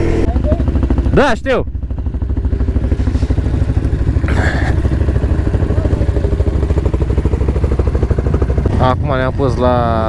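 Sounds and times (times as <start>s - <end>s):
atv engine running: 0.0s - 10.0s.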